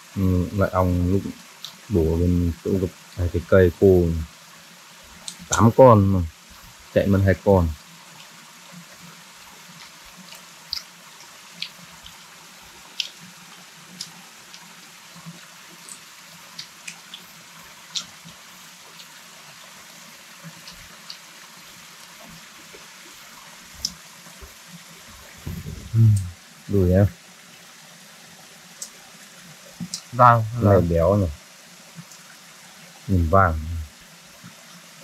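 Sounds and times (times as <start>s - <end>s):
fire crackling and popping: 5.1s - 19.6s.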